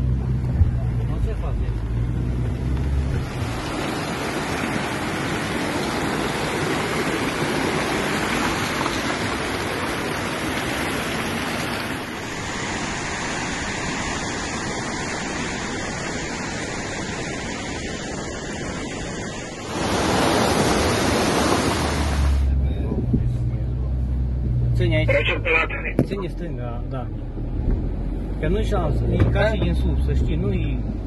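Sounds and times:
floodwater rushing: 0:00.0 - 0:22.6, 0:25.1 - 0:26.0.

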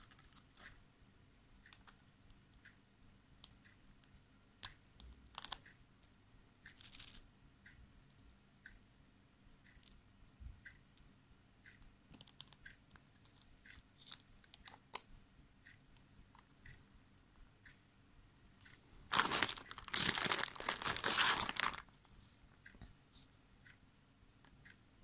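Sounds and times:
crackly rustle: 0:19.1 - 0:22.4.

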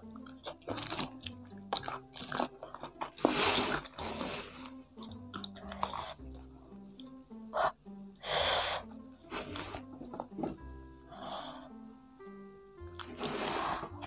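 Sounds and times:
chewing and crunching fried chicken: 0:00.0 - 0:07.2
background music: 0:00.0 - 0:14.0.

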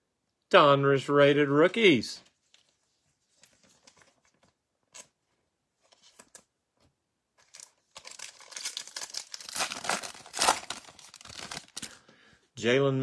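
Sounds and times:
foil wrapper crackling: 0:07.4 - 0:12.0.

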